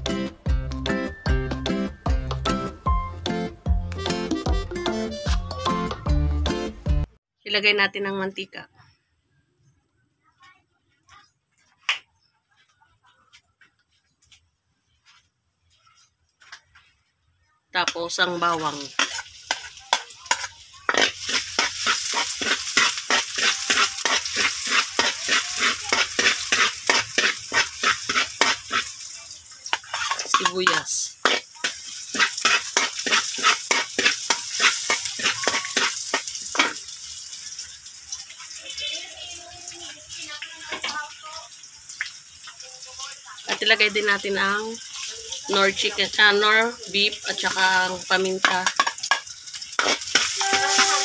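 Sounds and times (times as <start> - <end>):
garlic and onions sizzling in oil: 17.8 - 51.0
metal spatula scraping a wok: 18.5 - 29.1, 29.7 - 36.8, 48.4 - 51.0.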